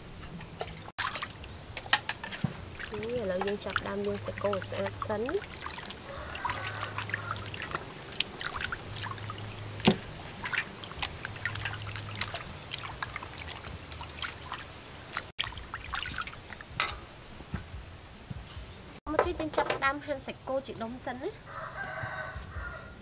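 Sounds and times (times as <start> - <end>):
water sloshing in metal basin: 0.4 - 17.1.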